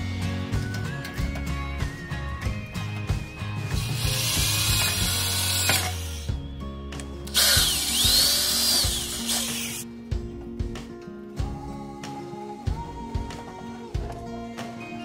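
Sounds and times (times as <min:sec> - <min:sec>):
power drill motor whine: 0:03.8 - 0:06.5, 0:07.3 - 0:09.8.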